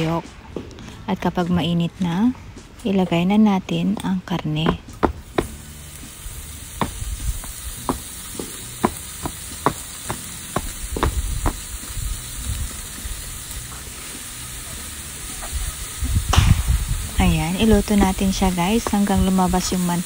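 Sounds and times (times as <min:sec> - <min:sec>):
meat sizzling in a frying pan: 0:05.0 - 0:20.0.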